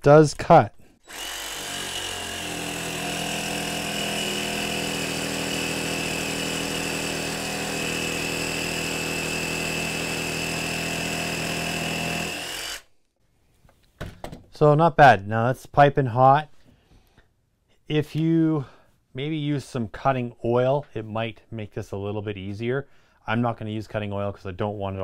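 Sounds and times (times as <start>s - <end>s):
jigsaw cutting steel plate: 1.0s - 12.9s.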